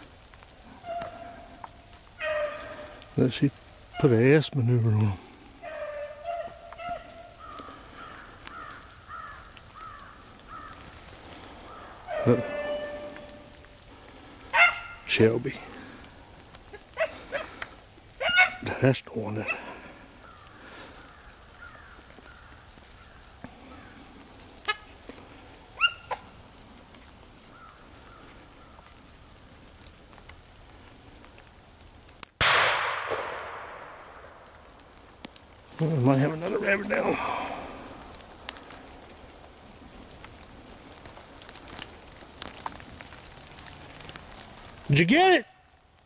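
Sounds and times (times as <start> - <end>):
light rain pattering on leaves: 0.0 - 46.0
dogs barking: 2.1 - 3.0, 5.6 - 7.4, 12.0 - 13.2, 14.5 - 15.1, 16.7 - 17.6, 18.2 - 18.7, 25.8 - 26.3.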